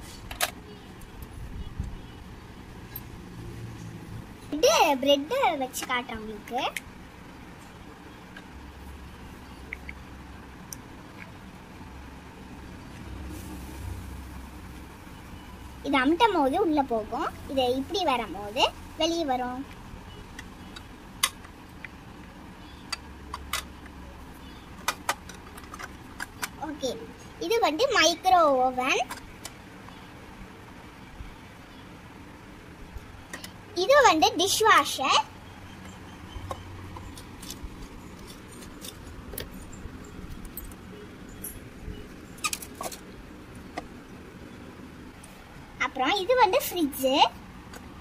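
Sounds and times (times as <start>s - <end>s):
plastic toys clicking and knocking: 22.8s - 24.0s, 24.7s - 26.6s, 29.0s - 29.6s, 35.8s - 40.8s, 42.4s - 44.0s.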